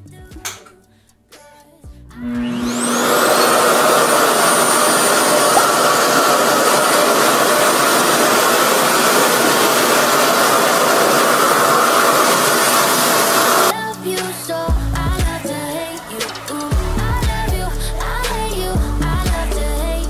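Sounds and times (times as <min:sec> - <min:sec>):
hair dryer motor whine: 0:02.2 - 0:13.7.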